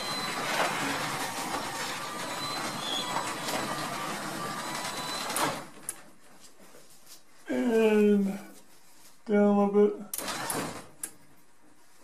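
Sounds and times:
garage door opener running: 0:00.0 - 0:06.0, 0:10.2 - 0:11.1.

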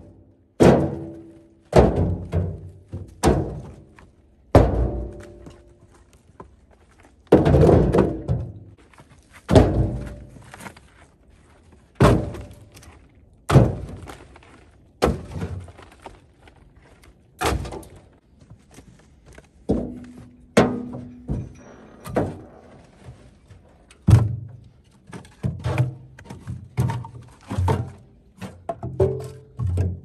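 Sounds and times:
firewood thunking into metal cart: 0:00.0 - 0:05.8, 0:07.3 - 0:08.8, 0:09.4 - 0:10.8, 0:11.9 - 0:16.1, 0:17.4 - 0:18.2, 0:19.6 - 0:30.0
metal cart bed ringing: 0:20.5 - 0:22.8.

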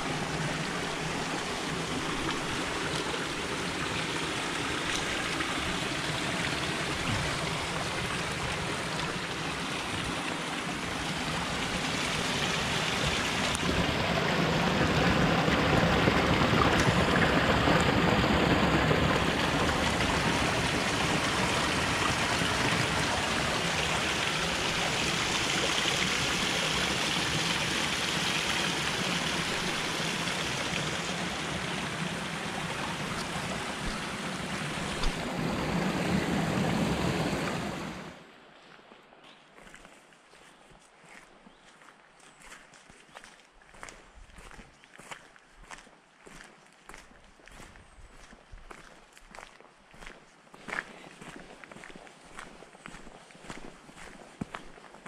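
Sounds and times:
flowing water rushing: 0:00.0 - 0:38.7.

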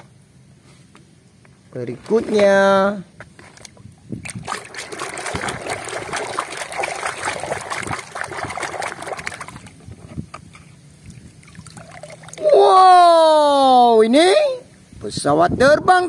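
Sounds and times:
water splashing in a tub: 0:03.4 - 0:09.8, 0:11.0 - 0:12.6.

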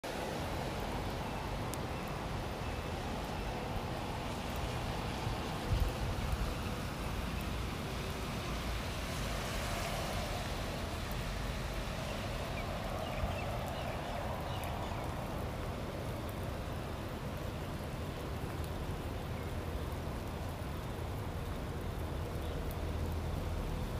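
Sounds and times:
rain on pavement: 0:00.0 - 0:23.9
wind rumble on microphone: 0:03.3 - 0:16.2.

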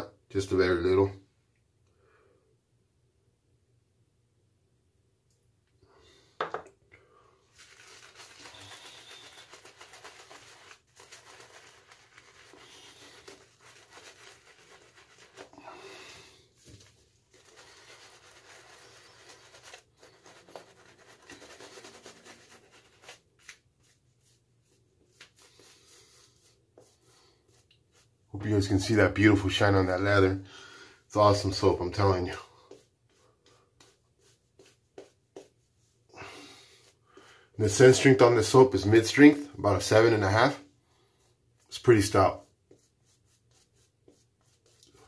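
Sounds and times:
shaving brush swishing lather: 0:07.5 - 0:30.3, 0:31.2 - 0:37.0, 0:41.6 - 0:45.0.

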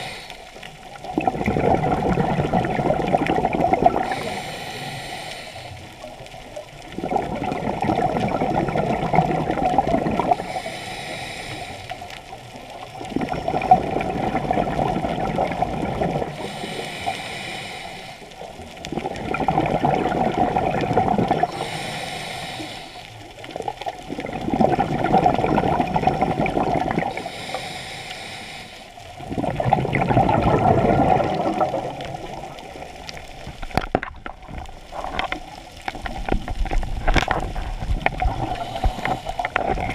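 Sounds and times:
regulator inhale hiss: 0:00.0 - 0:00.7, 0:04.0 - 0:06.1, 0:10.3 - 0:12.4, 0:16.3 - 0:18.5, 0:21.4 - 0:23.4, 0:27.1 - 0:29.2, 0:38.2 - 0:39.9
exhaled bubbles rushing: 0:00.9 - 0:04.4, 0:06.7 - 0:10.5, 0:13.0 - 0:16.5, 0:18.7 - 0:21.7, 0:23.5 - 0:27.3, 0:29.2 - 0:39.9.

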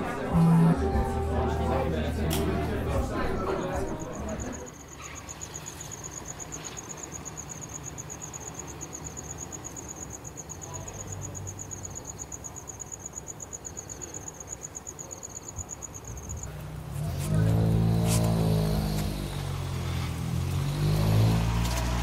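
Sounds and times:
cricket trilling: 0:04.4 - 0:19.3.

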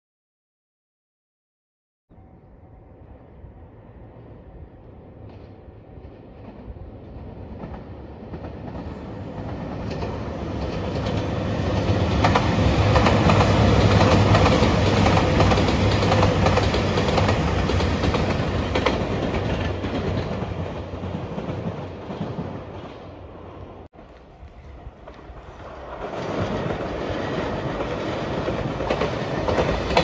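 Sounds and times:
diesel train engines: 0:02.1 - 0:30.0.

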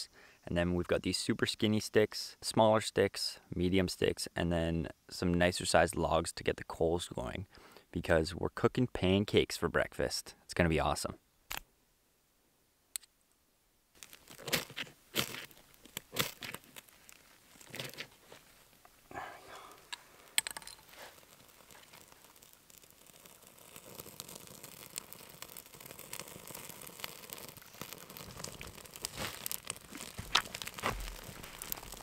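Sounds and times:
bark crackling as it burns: 0:13.9 - 0:32.0
sticks snapping in fire: 0:14.0 - 0:18.2, 0:19.8 - 0:32.0
knife scraping ferro rod: 0:19.9 - 0:30.8.

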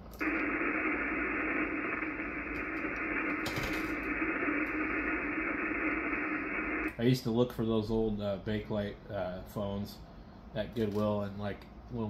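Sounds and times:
radio static hiss: 0:00.0 - 0:07.3.

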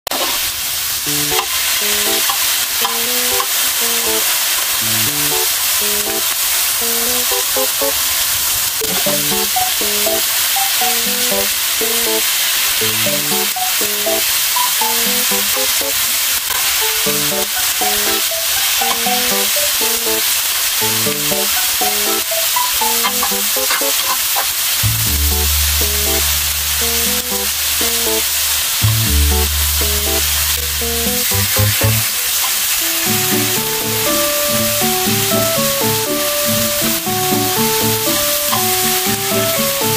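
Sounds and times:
pork sizzling on a grill pan: 0:00.1 - 0:39.9
tongs moving meat: 0:18.8 - 0:20.0, 0:21.9 - 0:24.5
light background music: 0:32.8 - 0:39.9.

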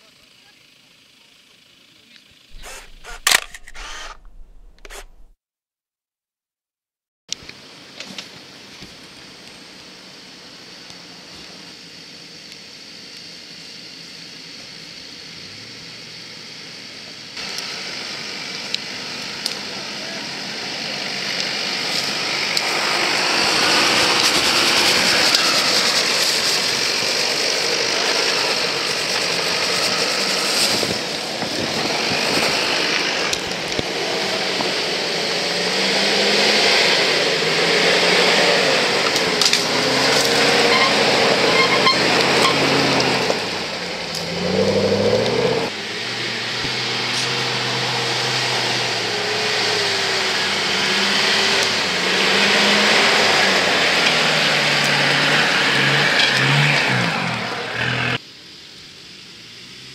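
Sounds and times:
off-road engines revving: 0:02.5 - 0:05.3, 0:17.4 - 0:58.2.

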